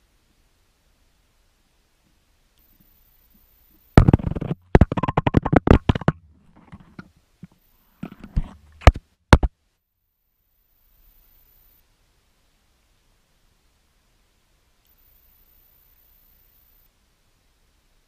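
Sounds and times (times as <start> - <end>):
loud knock: 4.0 - 6.2
rapid rattle of sharp knocks: 4.0 - 7.0.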